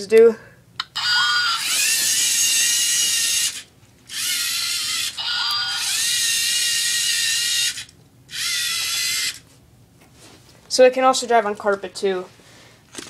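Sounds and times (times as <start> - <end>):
robot servo motors whining: 1.0 - 9.4.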